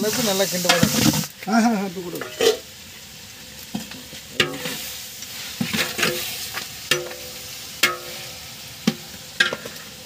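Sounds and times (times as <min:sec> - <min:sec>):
onions sizzling in oil: 0:00.0 - 0:10.0
ladle knocking and scraping pot: 0:02.2 - 0:02.6, 0:03.7 - 0:04.8, 0:05.6 - 0:08.2, 0:08.9 - 0:09.8.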